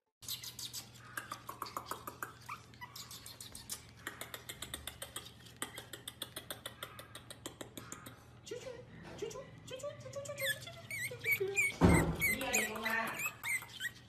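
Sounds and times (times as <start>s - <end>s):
puppy whimpering and squeaking: 0.2s - 7.2s, 10.1s - 14.0s
fast sharp clicks and taps: 3.1s - 8.1s.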